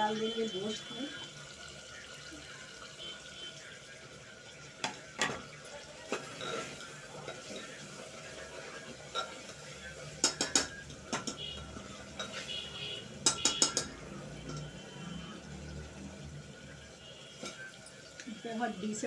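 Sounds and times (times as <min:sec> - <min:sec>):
faint sizzle: 0:00.0 - 0:19.0
spoon clinking: 0:09.1 - 0:09.6
spoon scraping metal pot: 0:12.1 - 0:14.8.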